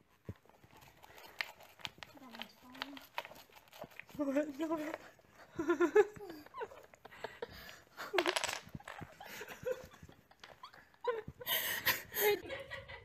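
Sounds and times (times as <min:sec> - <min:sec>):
person laughing: 0:05.4 - 0:13.0
wooden blocks clattering down: 0:08.1 - 0:09.3.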